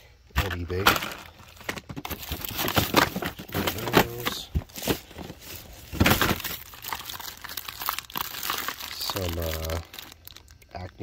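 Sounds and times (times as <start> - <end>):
plastic wrap crinkling: 0.6 - 11.0
cardboard packaging rubbing and knocking: 1.6 - 6.6.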